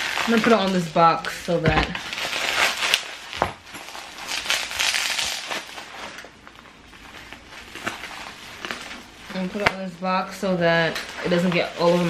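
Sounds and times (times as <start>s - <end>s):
packaging crinkling: 0.0s - 12.0s.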